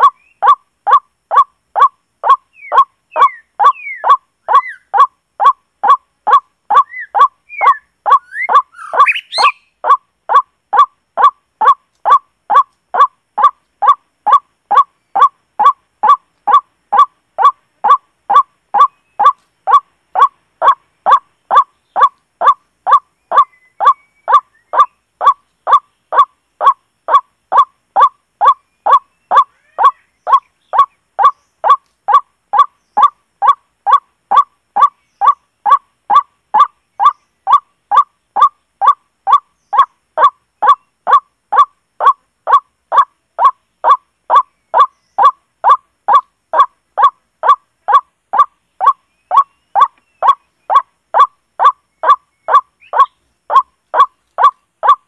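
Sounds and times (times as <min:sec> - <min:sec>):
bird honking call: 0:00.0 - 0:26.3.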